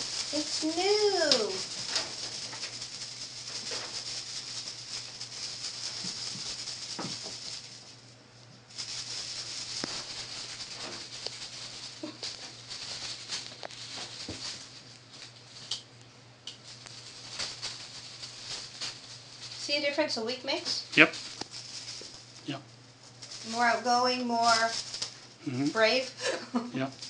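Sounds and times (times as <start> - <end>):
kitten paws pattering on tile: 0.0 - 8.0, 8.6 - 15.9, 16.5 - 19.7, 20.6 - 22.4, 23.0 - 26.4
crinkly plastic toy rustling: 0.0 - 8.1, 8.7 - 15.8, 16.6 - 20.2, 20.8 - 22.4, 23.1 - 26.3.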